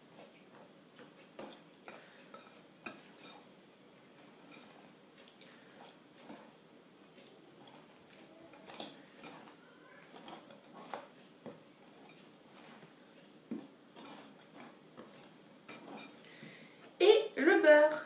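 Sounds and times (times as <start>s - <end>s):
whisk scraping glass bowl: 2.4s - 3.5s, 8.6s - 16.2s.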